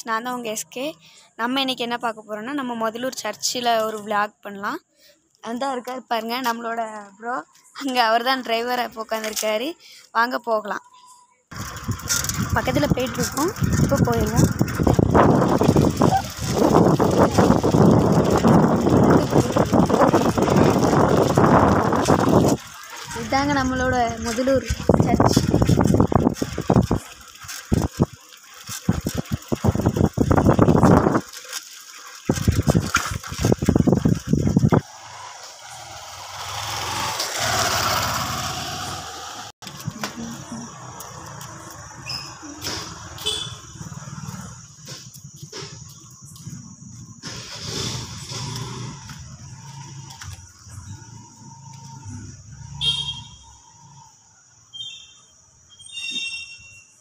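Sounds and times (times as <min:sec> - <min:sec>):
low rumble: 0:11.5 - 0:27.0
vehicle rumbling and buffeting: 0:11.5 - 0:31.3, 0:32.3 - 0:54.6
high thin whine: 0:33.5 - 0:40.8.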